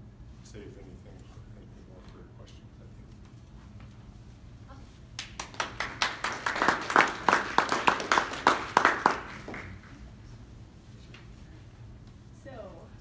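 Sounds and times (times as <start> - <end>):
audience applauding: 5.2 - 10.0.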